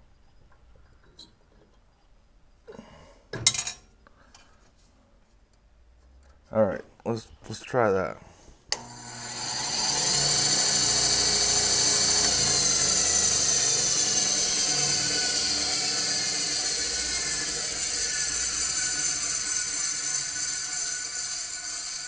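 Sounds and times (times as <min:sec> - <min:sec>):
bandsaw whirring: 0:08.8 - 0:22.0.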